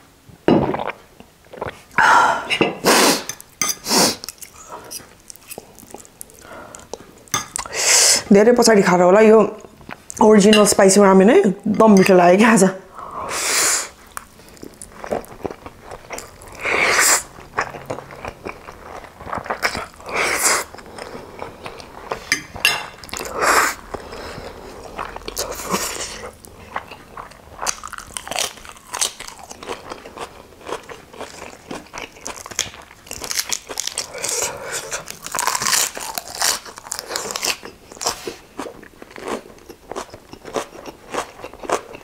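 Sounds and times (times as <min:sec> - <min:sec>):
wet chewing: 0:03.3 - 0:07.7, 0:13.9 - 0:42.0
lettuce leaves tearing: 0:32.3 - 0:38.3.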